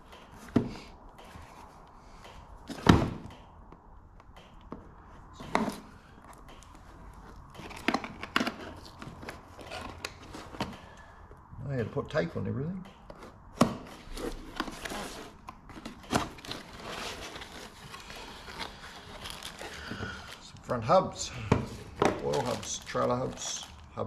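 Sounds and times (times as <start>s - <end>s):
box being knocked and set down: 2.7s - 3.2s
packaging rustling: 5.4s - 11.2s, 13.1s - 20.6s, 21.6s - 24.0s.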